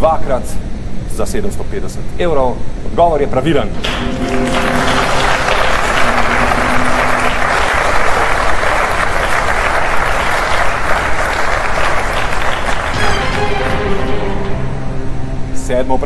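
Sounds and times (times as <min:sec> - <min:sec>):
audience applauding: 0:03.8 - 0:14.7.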